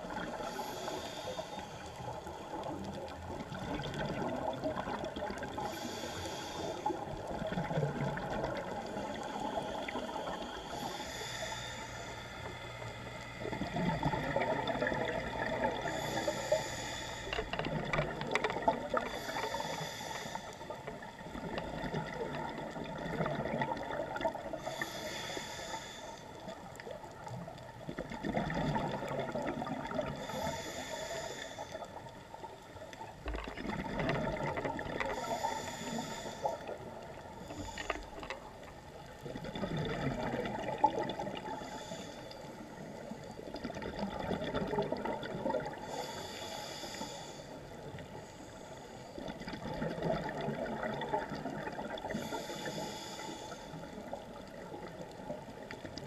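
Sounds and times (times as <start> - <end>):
regulator hissing inhalation: 0.4 - 2.2, 5.6 - 7.0, 8.9 - 12.4, 15.8 - 17.6, 19.0 - 20.8, 24.6 - 26.4, 30.2 - 31.8, 35.1 - 36.7, 45.8 - 47.7, 52.1 - 53.8
gurgle of exhaled bubbles: 2.2 - 10.9, 13.4 - 16.6, 17.3 - 19.8, 20.8 - 24.8, 26.6 - 30.4, 32.7 - 42.0, 42.7 - 46.0, 49.2 - 52.6.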